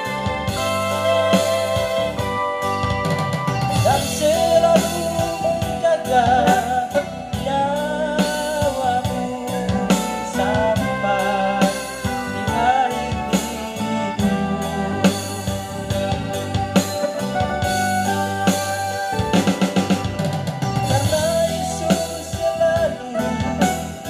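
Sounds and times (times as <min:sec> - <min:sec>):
man singing into a microphone: 0:00.0 - 0:02.3, 0:03.7 - 0:16.6, 0:20.8 - 0:24.0
electronic keyboard chords: 0:00.0 - 0:24.0
programmed drum beat: 0:00.0 - 0:24.0.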